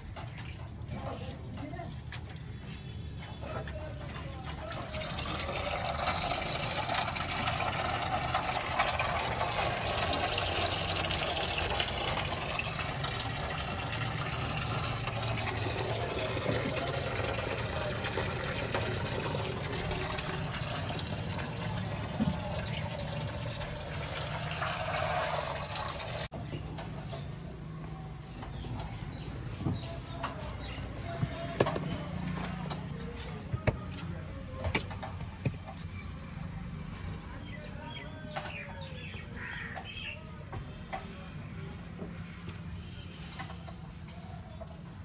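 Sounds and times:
oil draining and splashing: 0:00.0 - 0:26.4.

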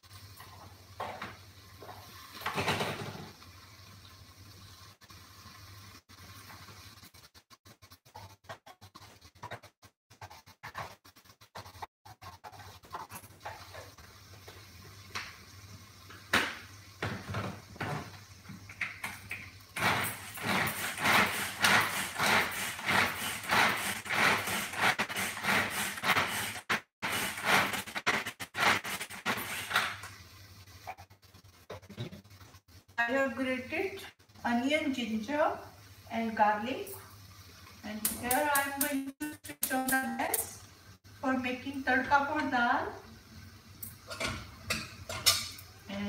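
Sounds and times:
rhythmic grater scraping: 0:19.8 - 0:30.0.

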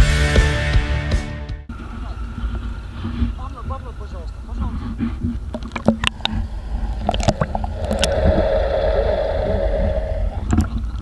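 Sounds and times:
muffled underwater hum: 0:01.7 - 0:11.0
water slapping and gurgling: 0:04.4 - 0:11.0.

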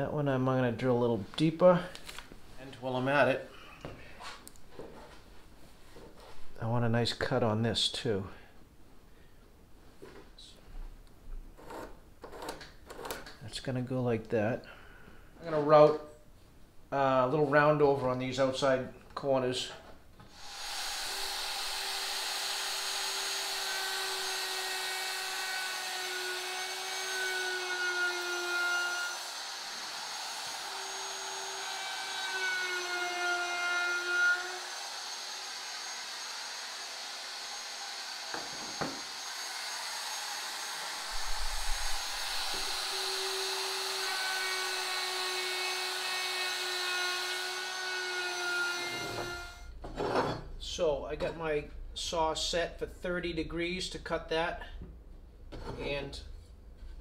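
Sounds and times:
electric router whining: 0:20.4 - 0:32.8, 0:34.6 - 0:49.6.

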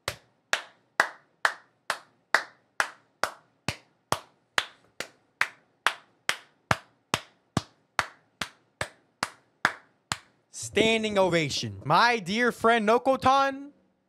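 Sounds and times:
hands clapping: 0:00.0 - 0:10.4.

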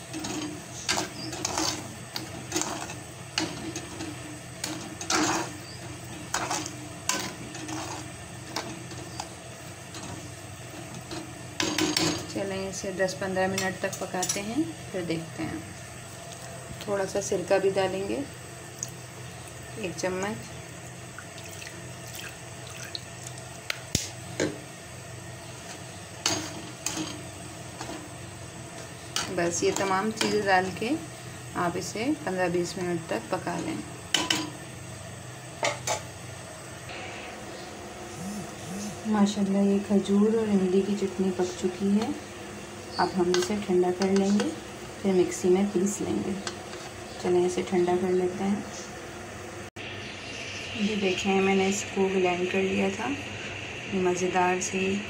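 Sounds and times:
spoon scraping a cooking pot: 0:00.0 - 0:09.4
low steady hum: 0:00.0 - 0:55.0.

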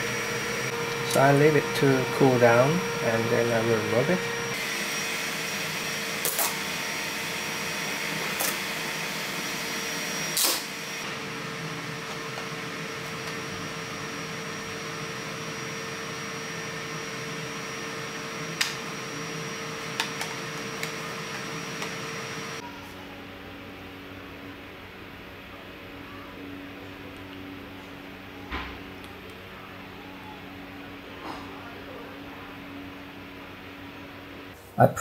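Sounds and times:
fan hum with high tone: 0:00.0 - 0:35.0.

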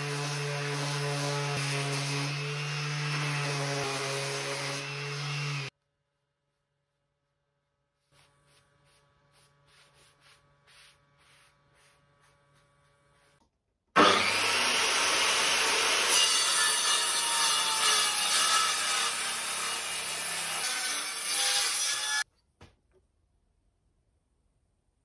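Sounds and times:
circular saw cutting wood: 0:00.0 - 0:05.7, 0:14.0 - 0:22.2
sanding block rubbing wood: 0:08.1 - 0:13.4.

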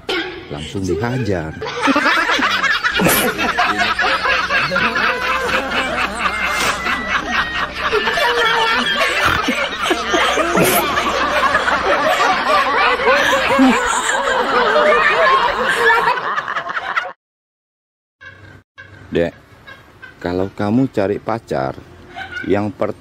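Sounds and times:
continuous laughter: 0:00.8 - 0:17.2, 0:22.1 - 0:22.5.

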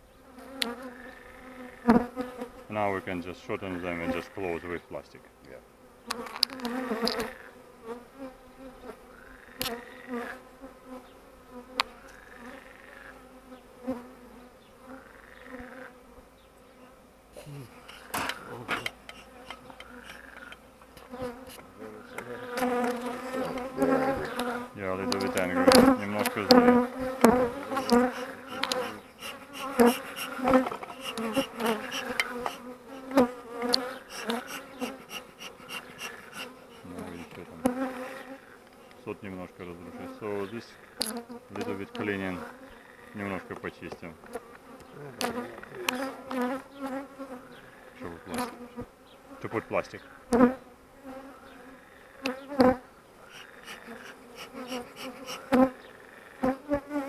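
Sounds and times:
honey bees buzzing: 0:00.0 - 0:57.0
hive tool scraping wooden frames: 0:01.9 - 0:04.8, 0:06.1 - 0:07.3, 0:17.7 - 0:47.4, 0:48.0 - 0:48.8, 0:52.3 - 0:55.7.

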